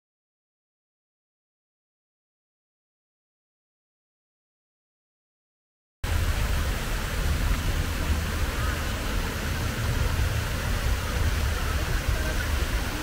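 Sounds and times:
even hiss: 6.0 - 13.0
low rumble: 6.0 - 13.0.

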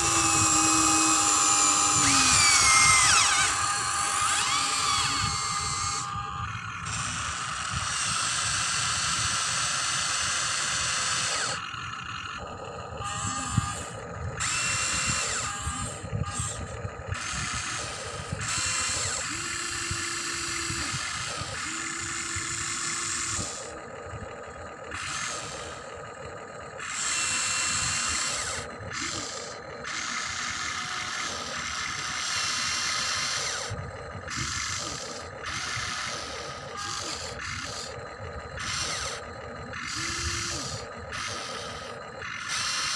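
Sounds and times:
electric motors whirring: 0.0 - 42.9.

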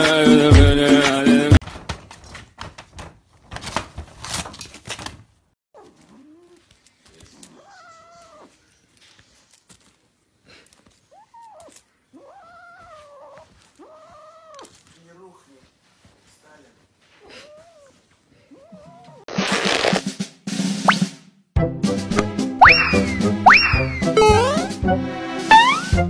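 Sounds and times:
music: 0.0 - 1.6, 19.4 - 26.0
knocks and rustling: 1.6 - 7.5
kitten mewing: 5.8 - 8.6, 11.1 - 14.8, 17.2 - 19.3, 22.6 - 24.7.

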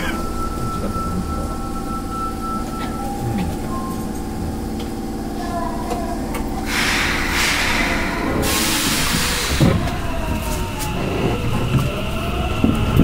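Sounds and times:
train electrical hum: 0.0 - 13.0
compressed air hiss: 6.7 - 9.6.

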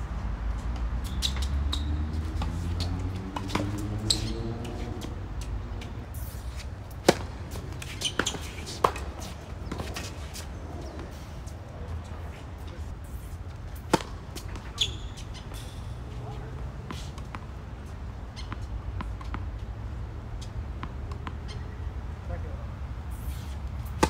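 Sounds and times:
tennis ball bouncing on court: 1.0 - 6.3, 6.9 - 11.2, 13.8 - 15.6, 16.2 - 17.6, 18.4 - 19.7, 20.4 - 21.7
racket hitting tennis ball: 2.3 - 11.2, 13.8 - 17.5, 23.2 - 24.0.

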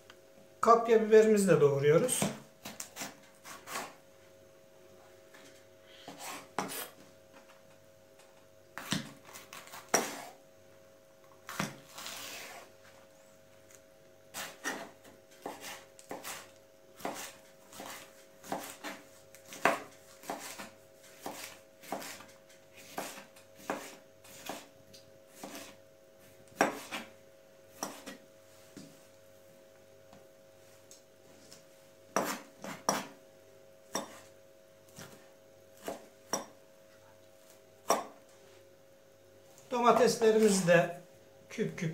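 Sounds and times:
knife chopping on wooden board: 8.8 - 10.3, 14.4 - 24.7, 25.3 - 25.8, 26.5 - 27.1, 27.8 - 28.2, 32.1 - 33.2, 33.9 - 34.3, 35.8 - 36.6, 37.8 - 38.2.

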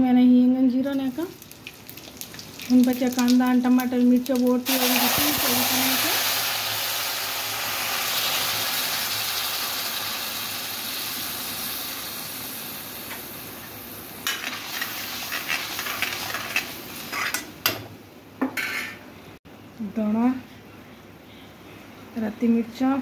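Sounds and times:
paste sizzling in hot oil: 0.9 - 17.5
spoon scraping a metal pan: 14.2 - 17.5, 18.6 - 19.0.

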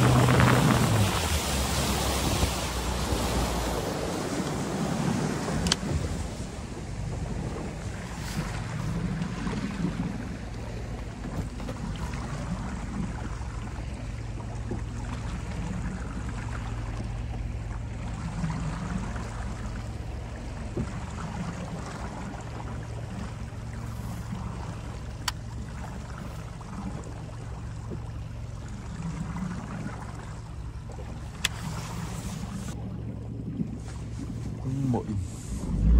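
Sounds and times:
boat motor humming: 0.0 - 35.9.

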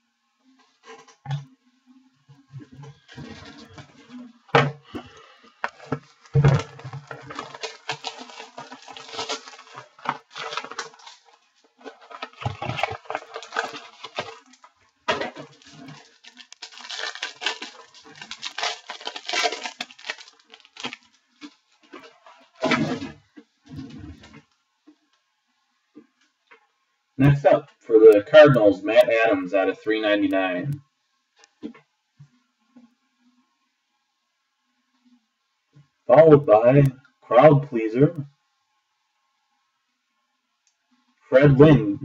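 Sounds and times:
cards and packaging rustling: 2.9 - 23.2.

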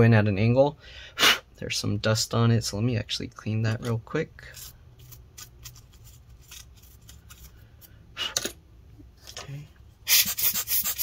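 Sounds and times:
quick rubbing strokes: 10.1 - 11.0.

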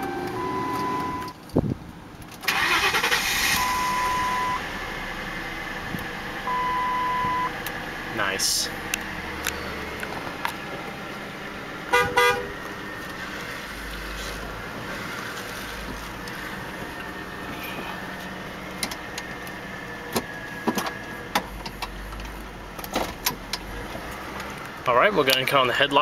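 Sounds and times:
car engine idling: 0.0 - 26.0
car horn honking: 11.8 - 12.6.

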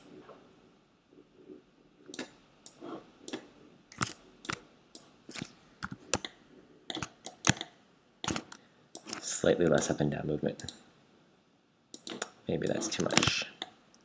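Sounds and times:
keyboard and mouse clicking: 2.1 - 9.2, 11.9 - 14.0.

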